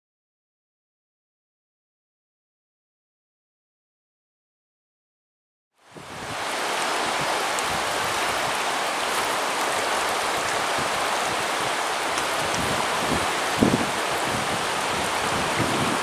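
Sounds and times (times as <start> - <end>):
river water rushing: 5.8 - 16.0.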